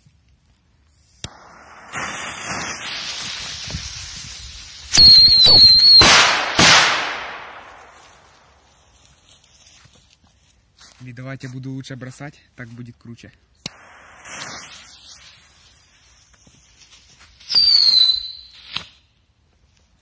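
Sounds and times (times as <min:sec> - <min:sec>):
fireworks shrill whistling: 0:00.9 - 0:08.6, 0:13.7 - 0:19.0
fireworks hissing: 0:00.9 - 0:09.0, 0:13.6 - 0:19.0.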